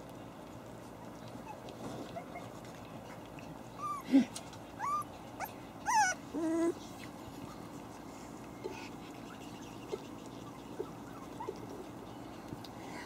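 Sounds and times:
puppies whimpering and yipping: 0.9s - 7.8s, 8.9s - 12.4s.

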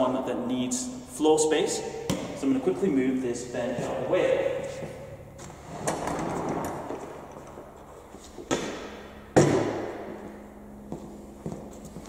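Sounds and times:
heavy thuds ringing in a hall: 8.5s - 11.6s.

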